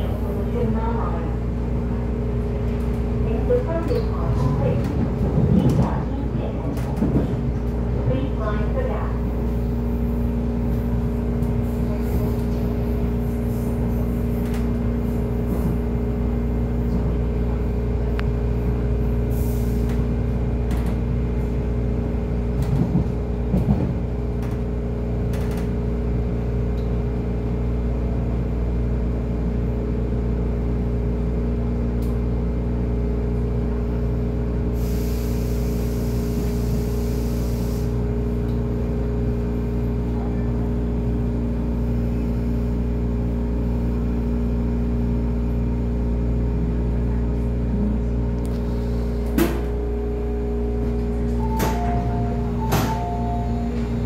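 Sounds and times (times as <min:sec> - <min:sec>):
constant hum: 0:00.0 - 0:34.8, 0:37.4 - 0:54.0
train wheels rumbling on track: 0:00.0 - 0:54.0
hiss: 0:34.8 - 0:38.0.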